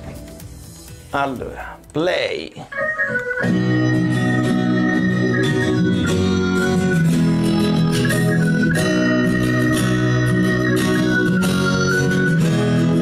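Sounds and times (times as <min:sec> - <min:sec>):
percussion: 0:00.0 - 0:02.4
organ-like chords: 0:02.7 - 0:13.0.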